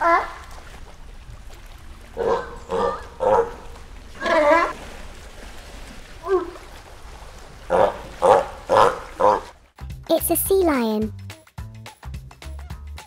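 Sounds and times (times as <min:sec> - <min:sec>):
sea lion barking: 0:02.1 - 0:04.8, 0:07.6 - 0:09.6.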